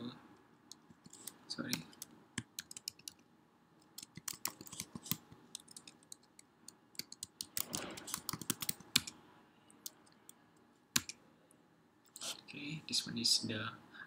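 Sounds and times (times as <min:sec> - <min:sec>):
computer keyboard typing: 0:00.7 - 0:03.2, 0:03.9 - 0:09.2, 0:11.0 - 0:11.2.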